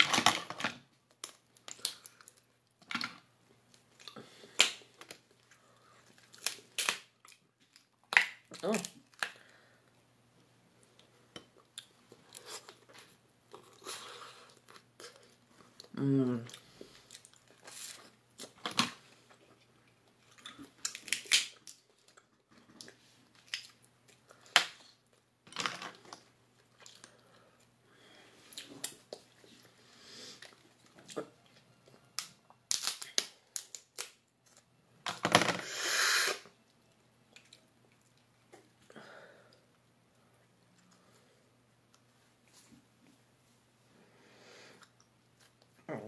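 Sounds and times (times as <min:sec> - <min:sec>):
lobster shell cracking: 0:20.8 - 0:21.8, 0:32.2 - 0:34.2.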